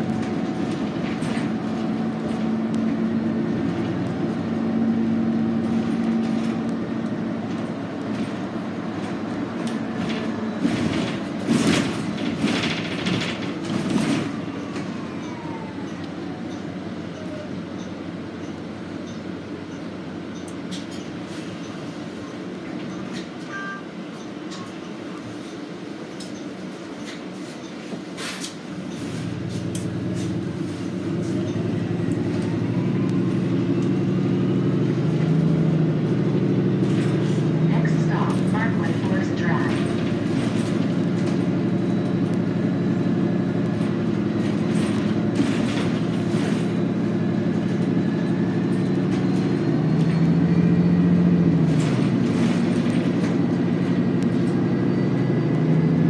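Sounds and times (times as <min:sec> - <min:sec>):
bus interior rumble: 0:00.0 - 0:56.0
rattles and clatters: 0:05.6 - 0:15.0, 0:27.0 - 0:37.6, 0:38.2 - 0:42.6, 0:43.4 - 0:50.4, 0:51.2 - 0:54.8.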